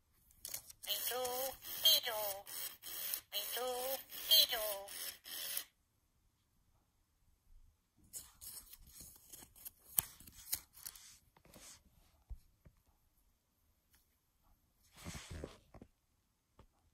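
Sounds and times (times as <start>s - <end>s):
paper and cardboard rustling: 8.1s - 11.8s.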